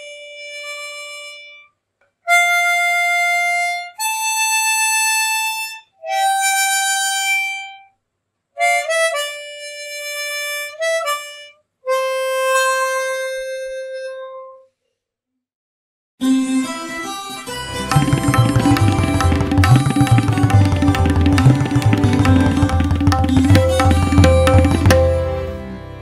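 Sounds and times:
slow solo melody: 16.2 - 25.8.

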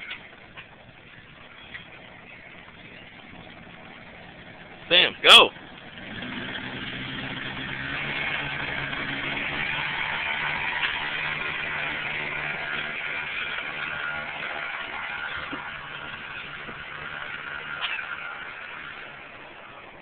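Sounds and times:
small moped engine running: 0.0 - 20.0.

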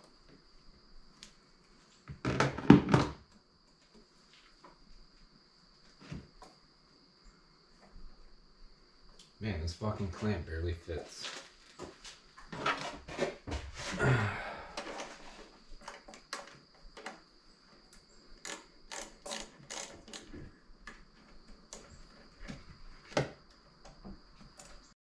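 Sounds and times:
hands working hose clamp clicks: 18.4 - 20.3.

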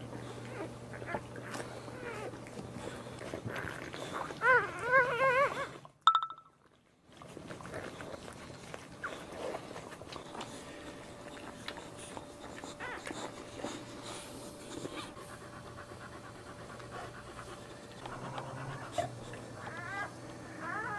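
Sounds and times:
dog panting: 7.4 - 20.9.

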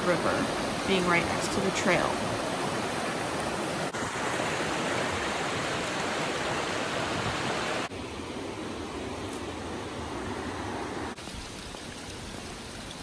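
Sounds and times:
river rushing over rocks: 0.0 - 7.9.

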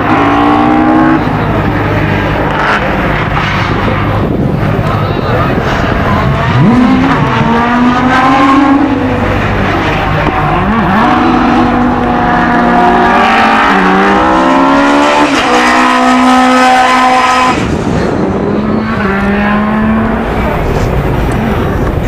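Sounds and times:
racing car engine accelerating: 0.0 - 22.0.

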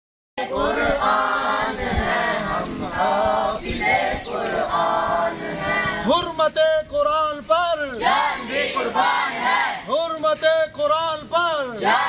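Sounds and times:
voices chanting in unison: 0.4 - 6.2, 7.9 - 10.0, 11.7 - 12.0.

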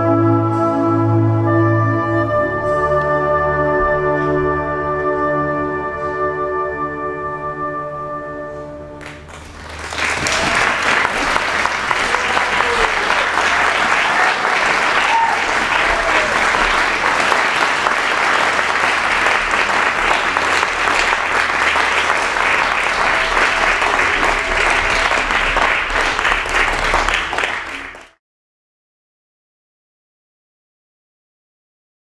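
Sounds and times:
audience applauding: 9.0 - 28.2.

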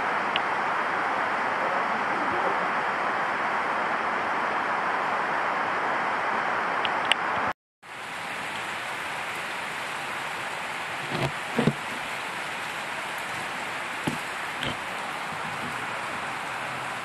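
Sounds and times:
rain falling in forest: 0.0 - 17.0
soft thumps: 14.1 - 14.8.

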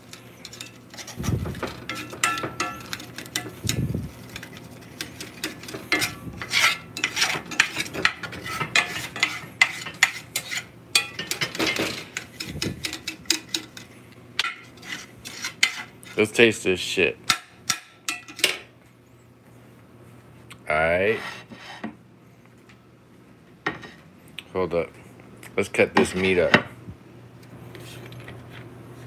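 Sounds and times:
metal spatula scraping skillet: 0.4 - 3.7, 4.3 - 16.3, 21.0 - 22.0.

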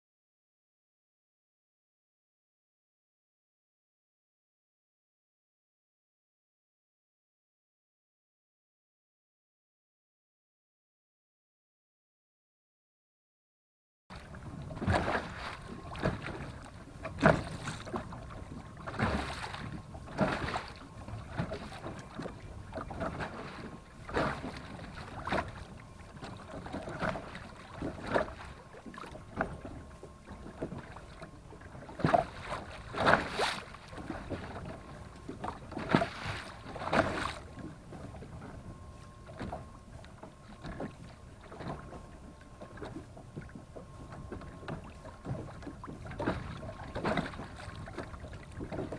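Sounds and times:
water splashing against boat hull: 14.1 - 48.9.

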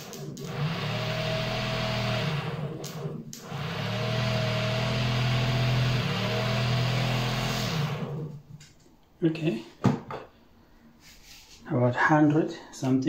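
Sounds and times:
generator motor humming and whining: 0.0 - 8.5.

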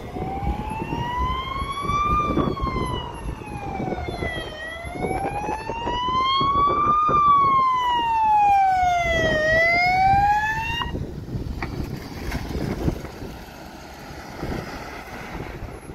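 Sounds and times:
ambulance siren wailing: 0.0 - 11.1
vehicle driving on road: 0.0 - 15.9.

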